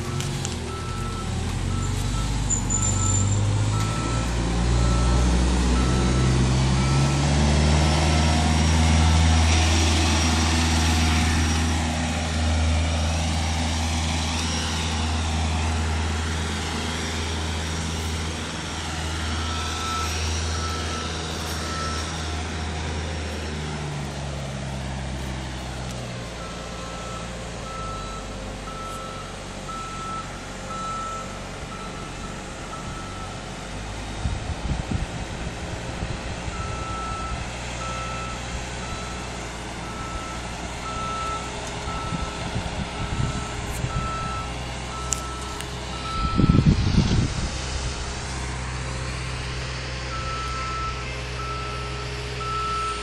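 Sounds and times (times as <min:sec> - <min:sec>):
reversing beeper: 0:00.0 - 0:08.0, 0:14.0 - 0:24.2, 0:25.7 - 0:33.5, 0:36.5 - 0:46.7, 0:50.1 - 0:53.0
forklift engine revving: 0:00.0 - 0:53.0.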